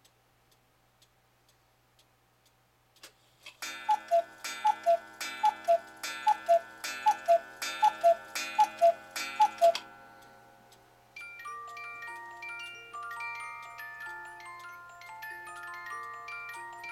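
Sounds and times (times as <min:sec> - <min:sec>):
clock ticking: 0:00.0 - 0:16.9
clock striking: 0:03.6 - 0:10.2
two-note cuckoo calls: 0:03.8 - 0:09.8.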